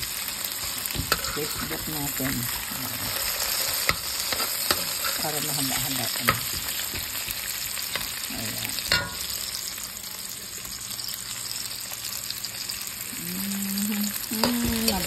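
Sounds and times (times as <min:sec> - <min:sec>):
food sizzling in a frying pan: 0:00.0 - 0:15.0
spatula scraping pan: 0:00.6 - 0:09.5
person speaking: 0:13.2 - 0:15.0.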